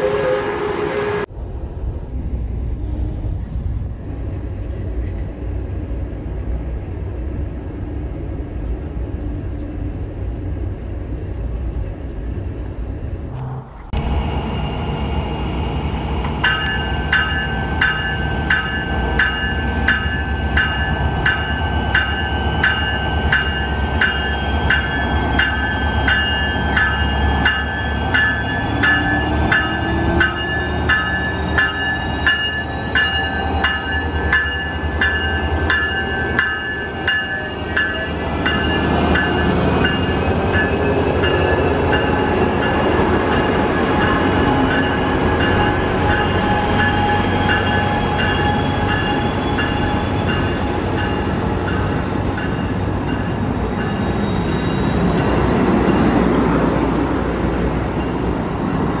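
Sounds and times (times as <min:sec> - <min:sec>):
train wheels rumbling: 0:00.0 - 0:59.0
locomotive engine rumble: 0:01.2 - 0:59.0
train bell ringing: 0:14.2 - 0:56.3, 0:57.9 - 0:59.0.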